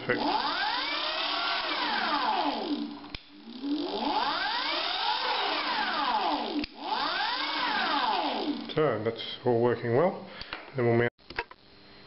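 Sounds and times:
electric bike motor whining: 0.0 - 8.8.

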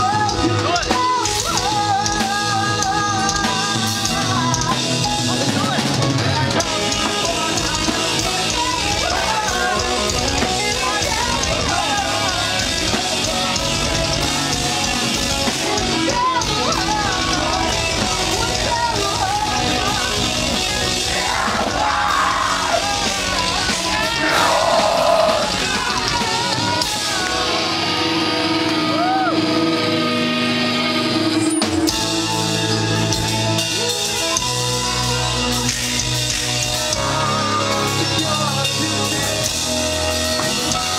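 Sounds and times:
drums: 0.0 - 40.9
electric guitar: 0.0 - 40.9
person yelling vocals: 24.0 - 25.7.

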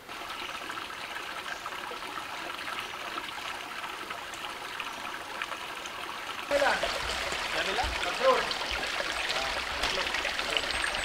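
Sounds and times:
stream water running: 0.0 - 11.0.

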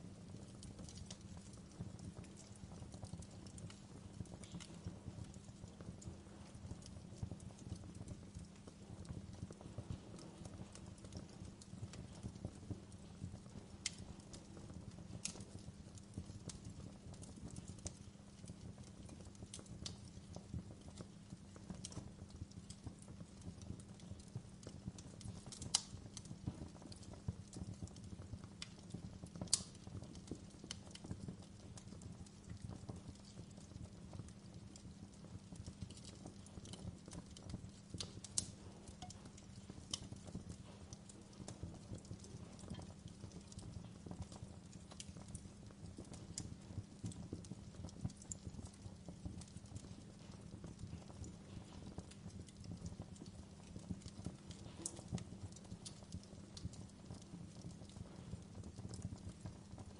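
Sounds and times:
logs crackling in fire: 0.0 - 59.9
sharp fire pops: 29.4 - 31.2.

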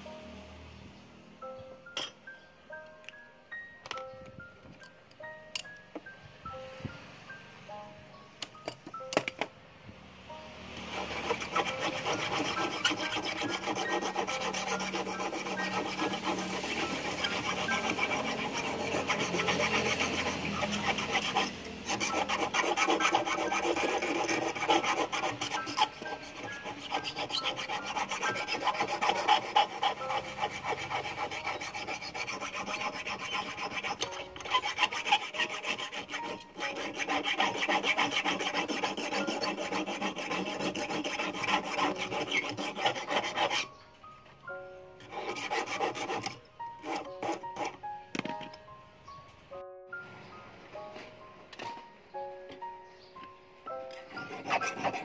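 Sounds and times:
file rasping on steel wire: 10.8 - 43.7, 45.0 - 47.8, 53.9 - 55.0.

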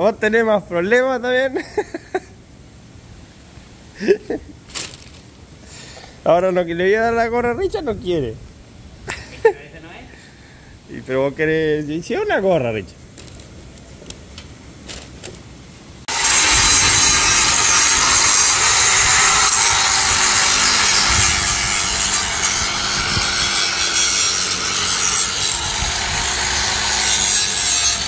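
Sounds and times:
angle grinder cutting steel: 16.1 - 28.0.

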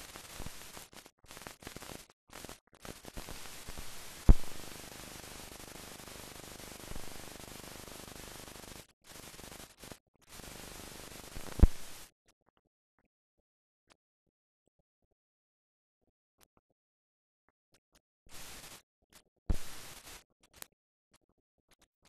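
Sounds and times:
loud pops: 0.0 - 4.8, 11.4 - 12.0, 19.5 - 20.2
film soundtrack hiss: 0.0 - 12.1, 18.3 - 18.8, 19.5 - 20.2.

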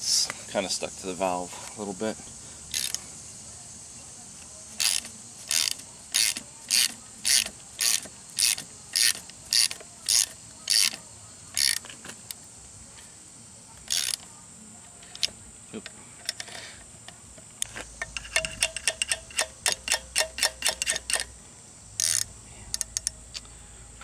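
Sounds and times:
ratchet wrench clicking: 2.7 - 3.0, 4.8 - 12.4, 13.9 - 14.3, 15.1 - 15.4, 16.2 - 21.3, 22.0 - 23.5.

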